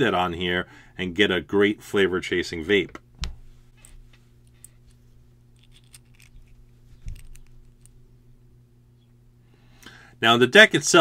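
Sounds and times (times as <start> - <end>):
low electrical hum: 0.0 - 11.0
small metal parts clicking: 5.5 - 8.0.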